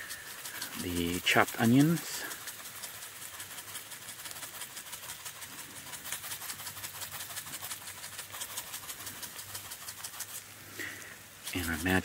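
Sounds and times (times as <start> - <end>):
meat sizzling over wood fire: 0.0 - 12.0
onion shaken from a jar: 0.0 - 12.0.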